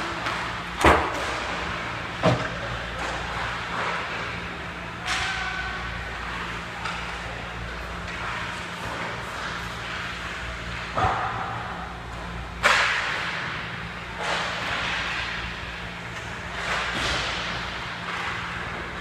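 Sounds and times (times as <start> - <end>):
hockey sticks clacking on puck: 0.0 - 1.8, 6.2 - 11.4, 12.6 - 13.4, 14.1 - 15.4, 16.1 - 18.8
low rink hum: 0.0 - 19.0.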